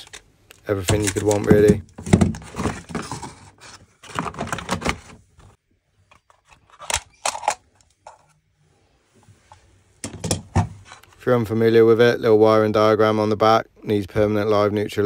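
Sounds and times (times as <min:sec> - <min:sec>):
cardboard and paper rustling: 0:00.8 - 0:05.6.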